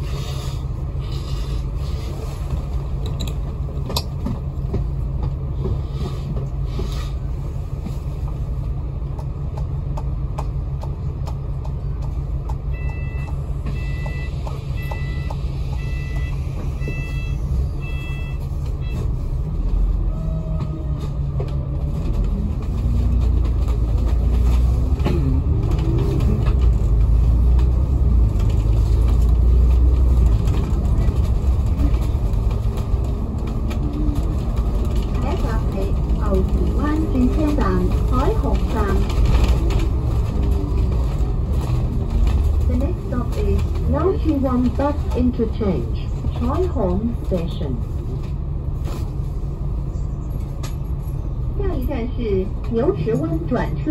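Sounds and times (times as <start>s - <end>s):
bus engine and road noise: 0.0s - 53.9s
short electronic beeps: 12.8s - 19.0s.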